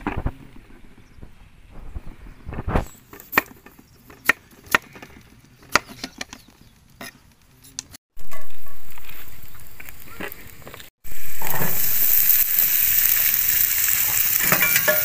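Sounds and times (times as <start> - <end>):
food sizzling in hot oil: 8.2 - 15.0.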